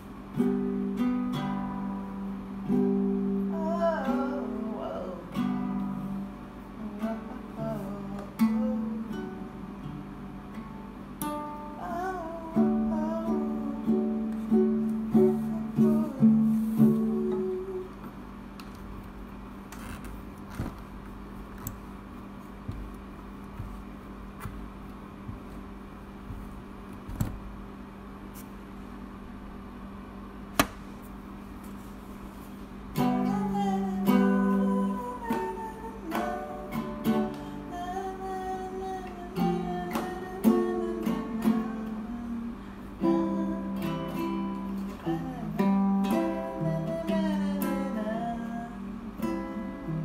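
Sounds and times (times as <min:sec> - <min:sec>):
acoustic guitar plucked and strummed: 0:00.0 - 0:18.1, 0:31.8 - 0:50.0
steady low hum: 0:00.0 - 0:50.0.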